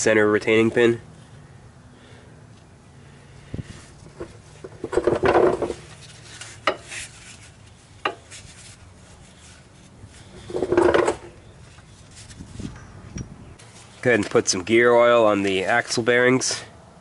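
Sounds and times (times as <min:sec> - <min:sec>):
metal parts scraping: 0:08.2 - 0:14.1.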